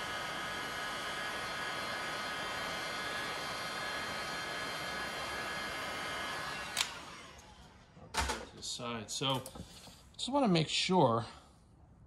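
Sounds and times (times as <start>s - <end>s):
heat gun blowing air: 0.0s - 7.8s
heat gun switch click: 6.7s - 7.0s.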